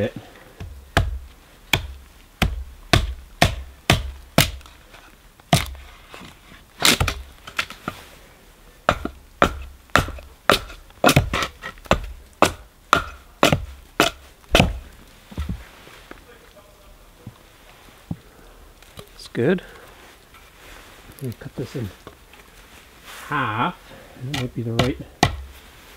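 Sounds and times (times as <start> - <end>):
hatchet chopping wood: 0.6 - 4.7, 5.5 - 5.8, 6.8 - 7.7, 8.9 - 14.8, 24.3 - 25.5.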